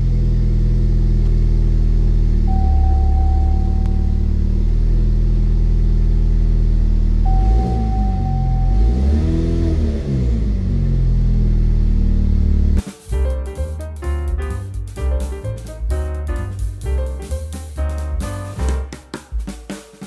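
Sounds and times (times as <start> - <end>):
car engine idling and revving: 0.0 - 12.9
thin steady whine: 2.4 - 4.8.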